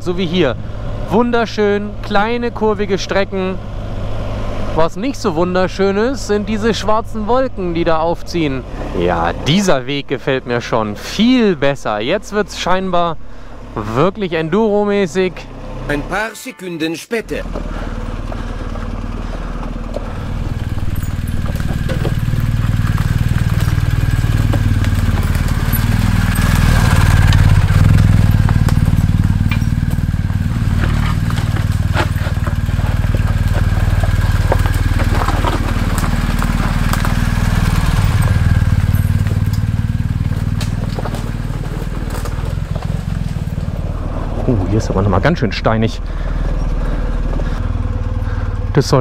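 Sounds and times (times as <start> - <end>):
motorcycle engine revving: 0.0 - 16.2, 17.3 - 49.0
stones clattering under tyres: 17.5 - 47.6.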